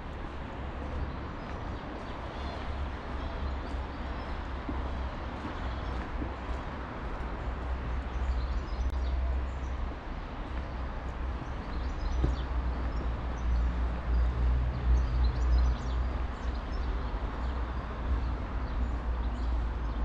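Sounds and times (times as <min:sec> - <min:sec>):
small birds chirping: 0:11.4 - 0:17.5.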